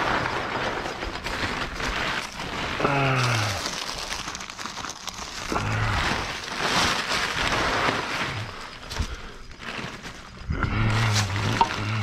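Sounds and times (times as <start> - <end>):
construction debris rustling and scraping: 0.0 - 12.0.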